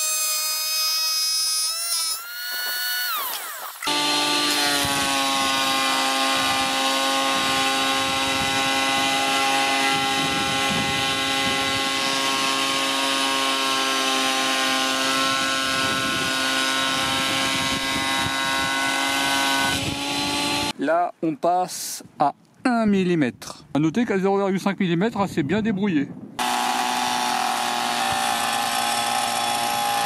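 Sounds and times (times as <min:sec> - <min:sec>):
planer motor whining: 0:01.6 - 0:20.7, 0:26.4 - 0:30.0.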